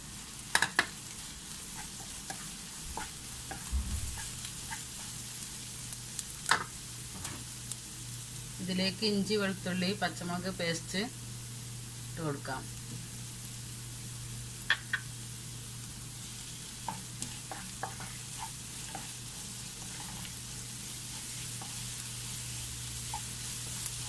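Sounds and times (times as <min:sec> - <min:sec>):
onions sizzling in a frying pan: 0:00.0 - 0:24.0.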